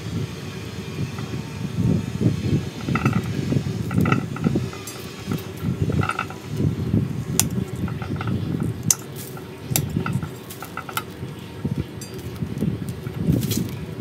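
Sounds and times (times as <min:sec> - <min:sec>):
pruning shears snipping: 0:07.3 - 0:11.2.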